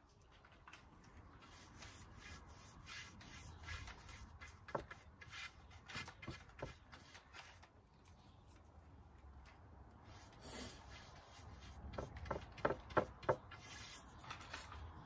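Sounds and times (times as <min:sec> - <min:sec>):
paintbrush scraping on wood: 0:01.3 - 0:07.7, 0:10.0 - 0:15.0.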